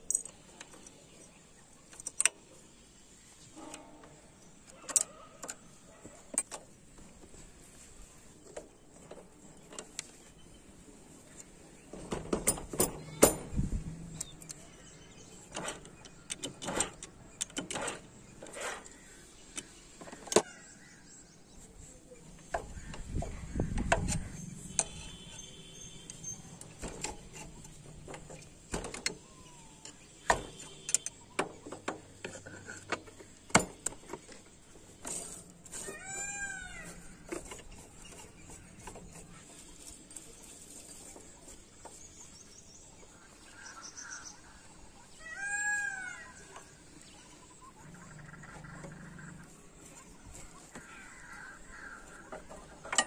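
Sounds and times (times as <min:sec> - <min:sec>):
metal tool clicks and clinks: 0:00.0 - 0:01.0.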